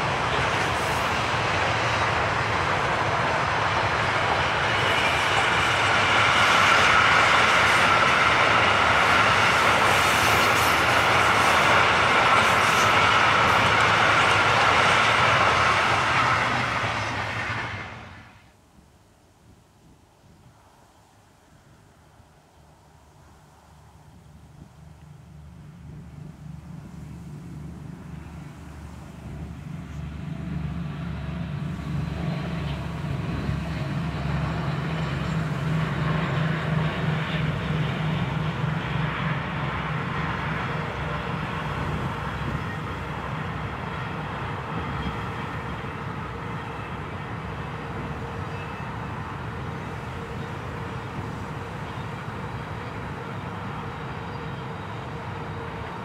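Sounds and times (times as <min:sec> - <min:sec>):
diesel locomotive engine throbbing: 0:00.0 - 0:18.3, 0:29.2 - 0:56.0
train wagons rolling: 0:00.0 - 0:18.4.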